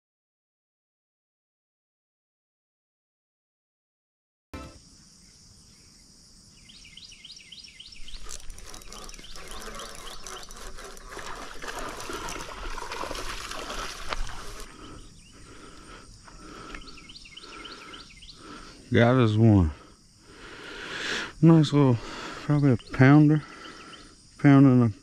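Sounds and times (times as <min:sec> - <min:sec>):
insects chirping: 0:04.6 - 0:25.0
fish splashing in water: 0:08.2 - 0:14.9.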